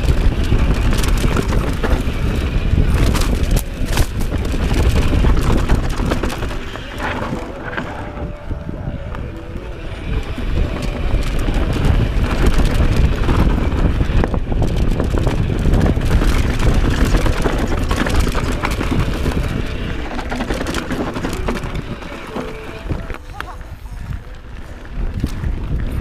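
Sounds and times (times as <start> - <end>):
bike knocks and rattles: 0.0 - 8.5, 10.0 - 23.6
tyres rolling over dirt: 0.0 - 26.0
wind buffeting microphone: 0.0 - 26.0.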